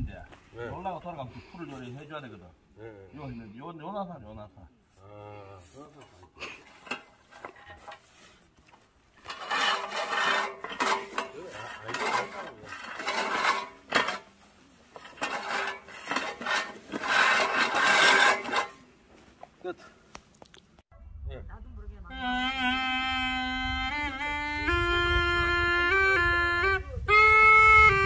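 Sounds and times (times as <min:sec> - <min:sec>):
reel mower blades whirring and clicking: 0:06.6 - 0:08.0, 0:08.7 - 0:18.8.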